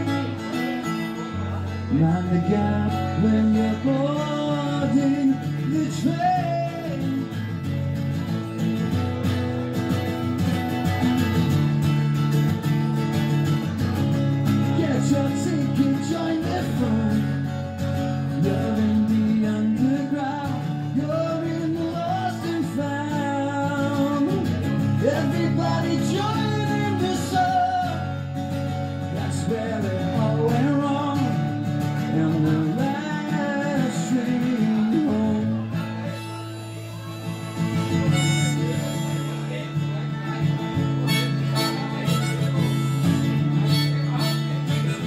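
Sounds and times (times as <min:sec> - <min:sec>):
strummed acoustic guitar: 0:00.0 - 0:45.0
harmonica melody: 0:35.8 - 0:45.0.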